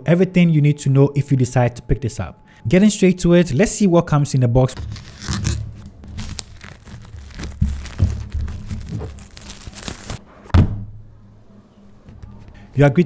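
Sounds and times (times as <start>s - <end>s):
plastic wrap crinkling and tearing: 4.8s - 10.2s
box bumps: 7.5s - 9.2s.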